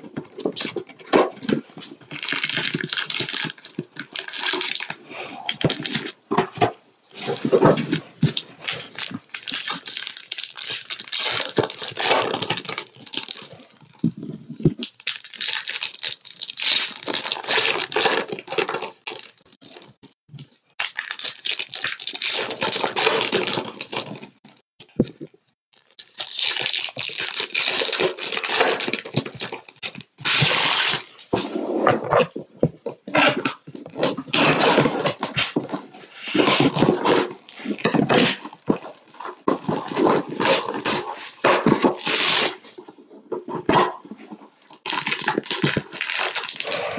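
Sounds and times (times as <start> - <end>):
cardboard tearing: 7.2 - 13.6, 26.0 - 32.2, 36.2 - 42.8
wrappers crinkling: 7.3 - 14.0, 20.8 - 24.6, 25.8 - 31.1, 44.8 - 46.8.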